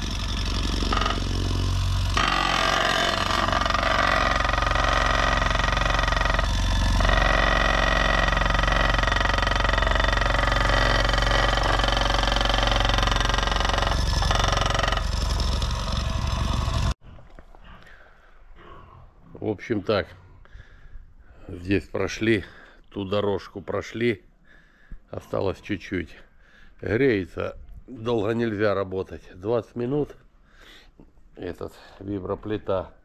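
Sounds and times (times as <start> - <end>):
plate compactor humming and rattling: 0.0 - 17.0.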